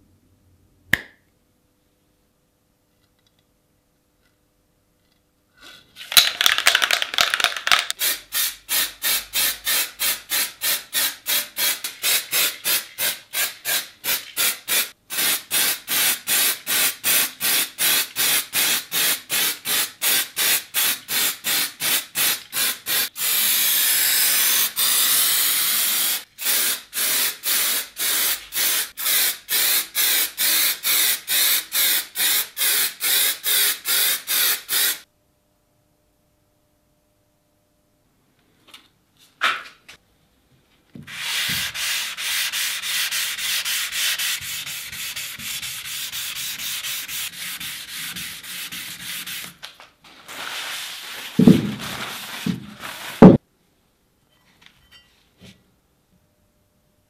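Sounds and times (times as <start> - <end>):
aerosol spray can hissing: 8.0 - 35.0.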